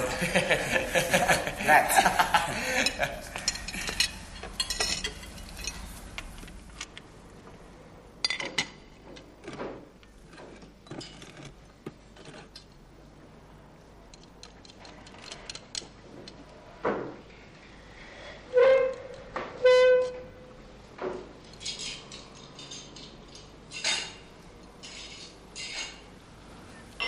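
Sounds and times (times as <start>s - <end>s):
dishes and cutlery clinking: 0.0s - 6.6s, 8.2s - 11.6s, 21.0s - 26.2s.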